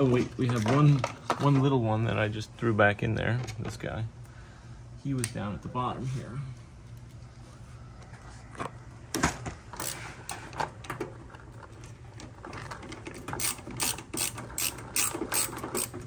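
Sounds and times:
ratcheting screwdriver clicking: 0:13.4 - 0:16.0.

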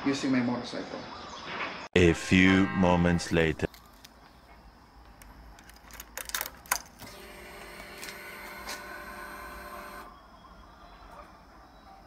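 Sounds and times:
fuel pump whining: 0:07.0 - 0:10.1.

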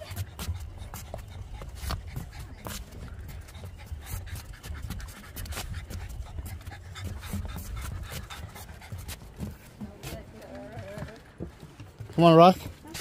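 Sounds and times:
dog panting: 0:00.0 - 0:13.0
footsteps on wooden boards: 0:00.0 - 0:13.0.

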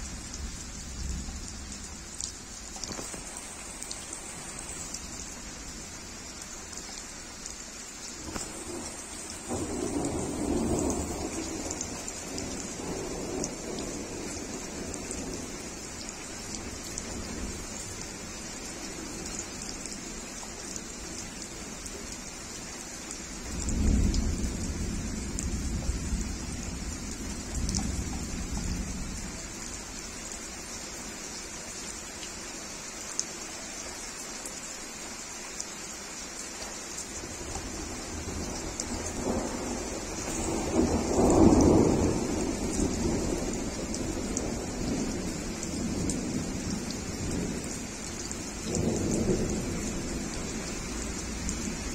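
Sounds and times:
heavy rain on leaves and paving: 0:00.0 - 0:51.9
thunder rumbling: 0:08.2 - 0:15.5, 0:37.3 - 0:47.8.

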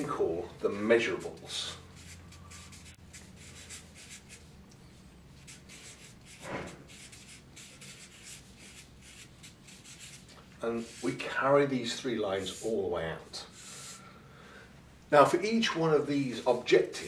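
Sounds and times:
steady low hum: 0:00.0 - 0:17.0
marker scratching on paper: 0:01.0 - 0:04.5, 0:05.4 - 0:11.4, 0:12.2 - 0:14.0.

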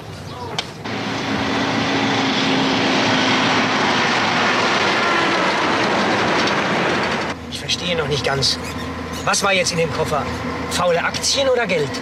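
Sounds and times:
truck driving past: 0:00.8 - 0:07.5
low engine drone: 0:00.8 - 0:12.0.

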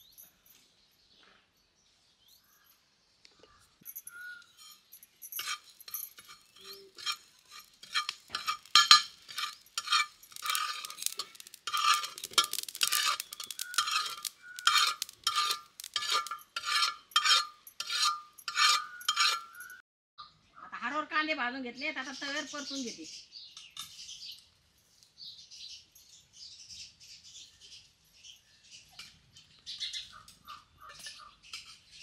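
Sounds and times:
metal spatula scraping iron pan: 0:04.5 - 0:19.8.

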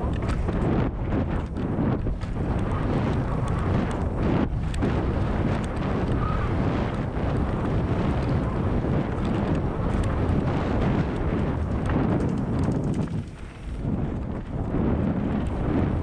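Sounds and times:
bike clicks and rattles: 0:00.0 - 0:16.0
tyres rolling over dirt trail: 0:00.0 - 0:16.0
wind buffeting microphone: 0:00.0 - 0:16.0.

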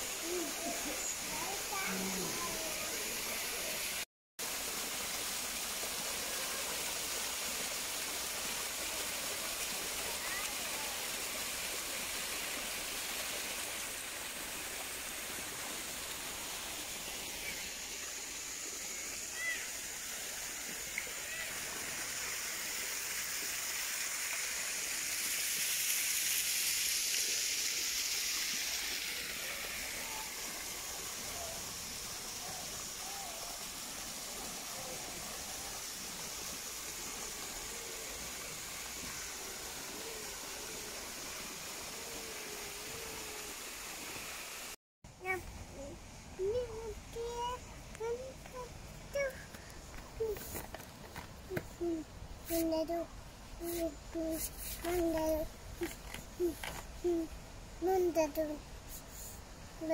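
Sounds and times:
waterfall rushing and splashing: 0:00.0 - 0:44.8.

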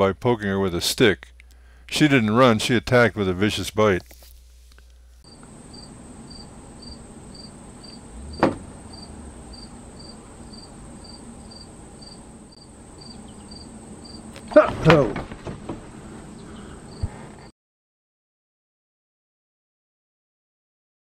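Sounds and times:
insect chirping: 0:05.2 - 0:14.5, 0:16.3 - 0:17.1
sharp knock: 0:08.4 - 0:08.7.

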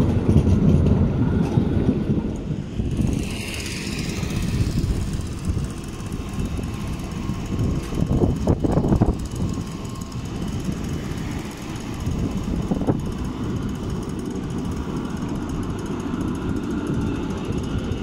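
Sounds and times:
rumble of vehicles on street: 0:00.0 - 0:18.0.

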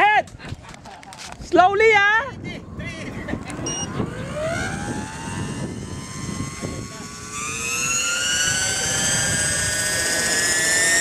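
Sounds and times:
model helicopter rotor whine: 0:02.3 - 0:11.0.

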